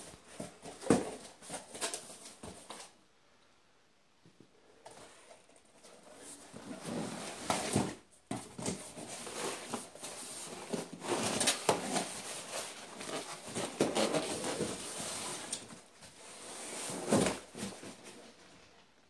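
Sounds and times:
cardboard box rustling and scraping: 5.8 - 18.4.

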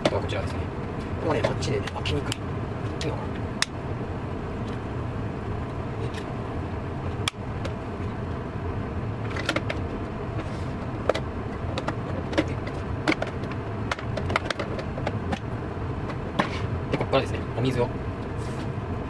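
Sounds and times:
steady low hum: 0.0 - 19.0
plastic parts clicking and knocking: 11.0 - 15.4.

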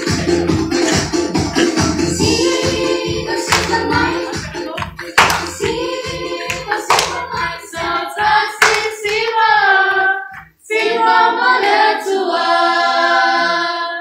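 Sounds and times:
music with a steady beat: 0.0 - 8.9
group singing: 0.0 - 14.0.

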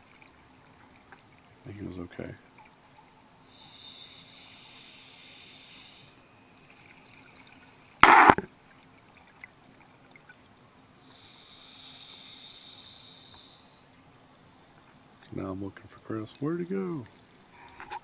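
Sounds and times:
regulator hissing inhalations: 3.5 - 6.2, 11.0 - 14.1.

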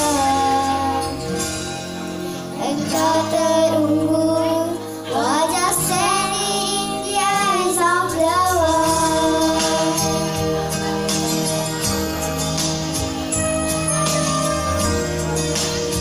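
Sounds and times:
child singing into microphone: 0.0 - 1.2, 2.6 - 10.4
recorded backing track: 0.0 - 16.0.

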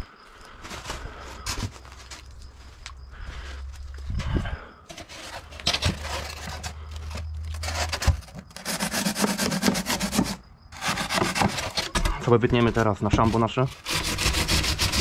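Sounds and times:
foam board scraping against brick: 4.9 - 15.0.

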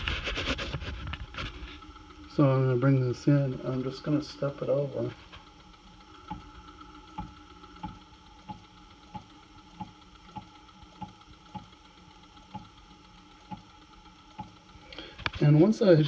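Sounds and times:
faint steady hum: 0.0 - 16.0
faint machine clicks: 1.1 - 16.0.

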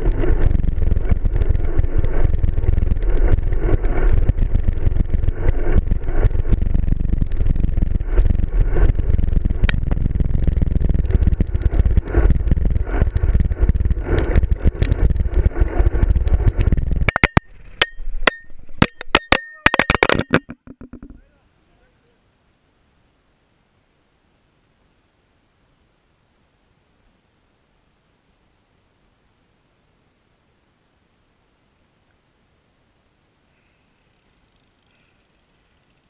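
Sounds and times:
wind rush: 0.0 - 17.8
road rumble: 0.0 - 21.6
sharp knocks and clicks ringing: 17.1 - 21.2.

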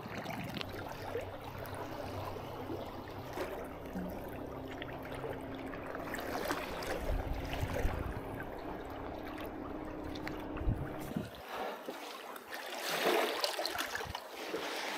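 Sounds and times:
seawater sloshing and gurgling: 0.0 - 14.9
steady low hum: 0.5 - 11.7
wind gusts on microphone: 6.9 - 8.5, 10.4 - 11.4.

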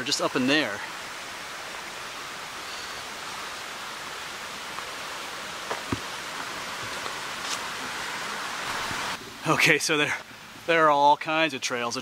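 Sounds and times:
creek running over stones: 0.0 - 11.9
soft knocks: 5.7 - 6.1.

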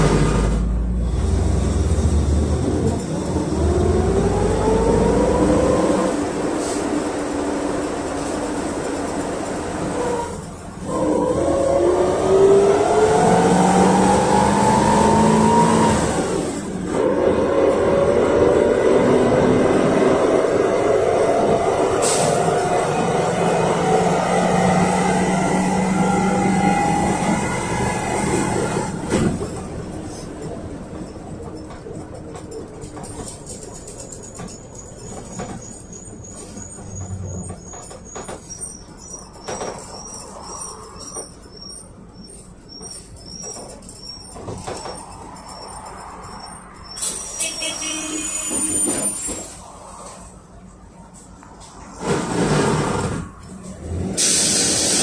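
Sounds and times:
bus engine accelerating: 0.0 - 55.0
high chirping squeaks: 34.0 - 44.5.

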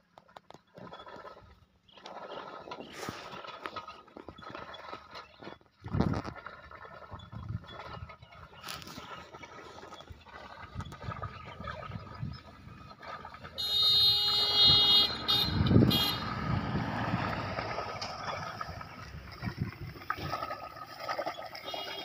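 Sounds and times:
vehicle horn: 13.6 - 16.8, 21.6 - 22.0
low rumble: 14.8 - 20.4.

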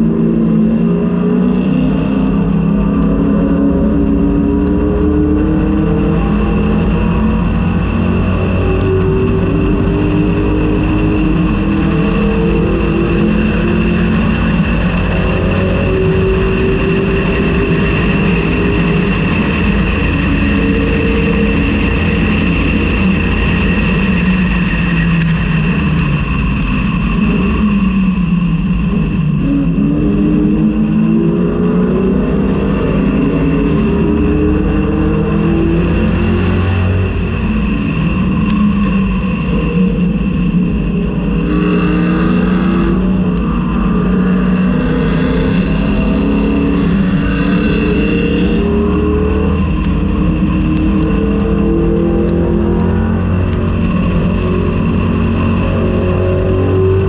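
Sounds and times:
race car engine accelerating: 0.0 - 57.0.

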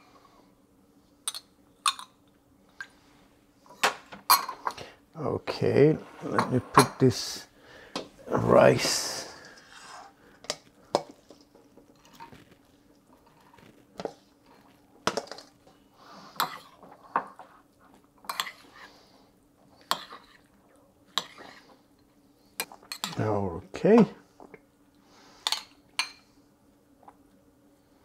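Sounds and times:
spoon scraping bowl: 5.9 - 7.3, 8.8 - 10.2, 18.3 - 18.9, 21.1 - 21.7.

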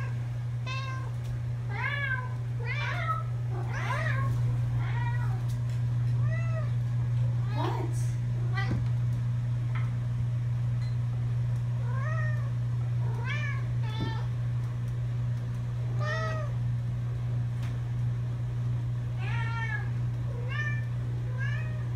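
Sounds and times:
low hum: 0.0 - 21.9
cat meowing: 1.7 - 5.5.

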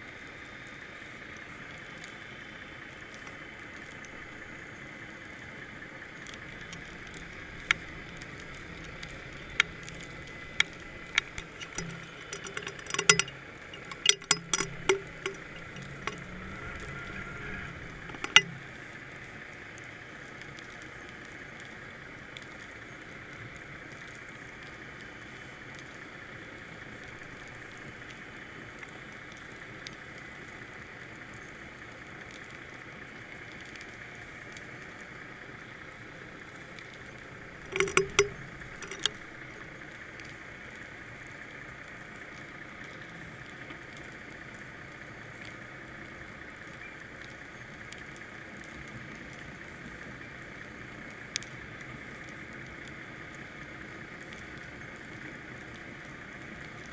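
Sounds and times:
steady underwater hiss: 0.0 - 56.9
low hum: 3.6 - 19.8, 35.7 - 44.6
sharp clicks and knocks: 6.2 - 18.8, 37.4 - 39.7.

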